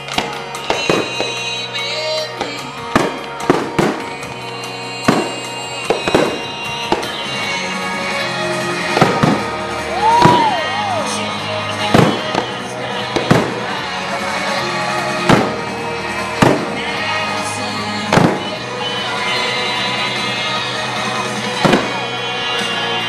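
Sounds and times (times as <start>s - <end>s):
fireworks bursting with bangs: 0.0s - 23.0s
music playing: 0.0s - 23.0s.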